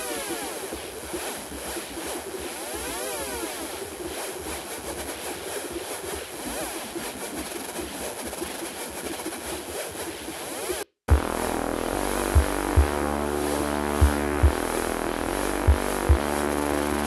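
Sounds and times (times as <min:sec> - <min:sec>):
electronic rushing noise: 0:00.4 - 0:17.0
low rumble: 0:11.1 - 0:17.0.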